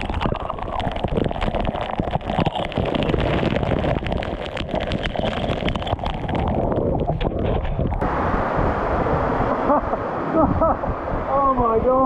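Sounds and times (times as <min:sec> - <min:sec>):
water patters on camera housing: 0:00.0 - 0:08.0
waterfall rushing: 0:08.0 - 0:12.0.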